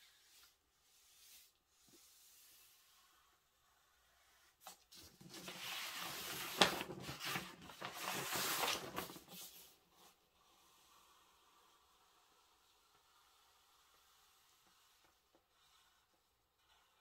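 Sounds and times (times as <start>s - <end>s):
paper rustling and sliding: 4.5s - 11.9s.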